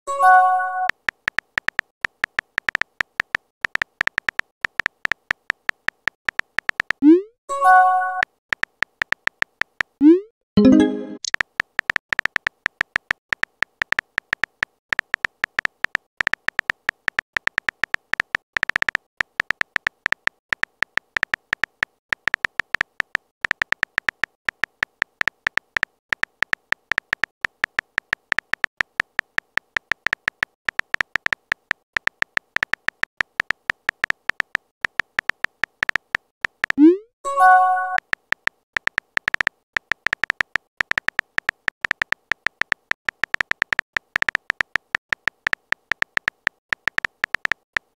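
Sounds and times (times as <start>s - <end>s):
keyboard clicking ticks: 0.3s - 47.9s.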